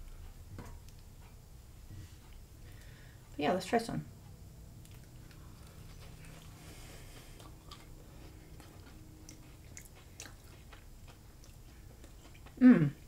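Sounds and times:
chewing soft cake: 0:04.7 - 0:13.0.

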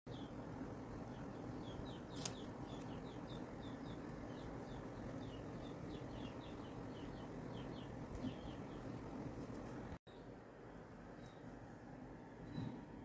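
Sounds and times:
small bird chirping: 0:00.1 - 0:10.3, 0:11.1 - 0:11.6
low steady hum: 0:00.1 - 0:13.0.

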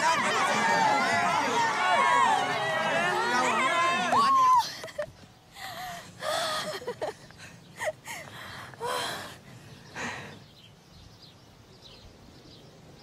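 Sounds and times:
people exclaiming and gasping: 0:00.0 - 0:10.4.

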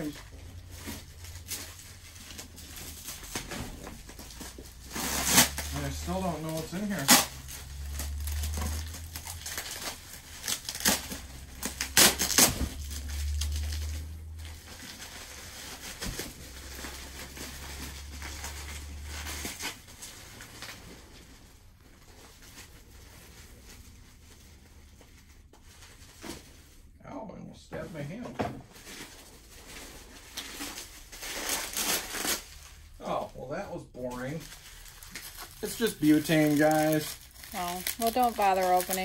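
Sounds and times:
low hum: 0:00.0 - 0:20.7
packaging wrap crinkling: 0:00.0 - 0:26.2, 0:28.7 - 0:33.4, 0:34.0 - 0:39.0.

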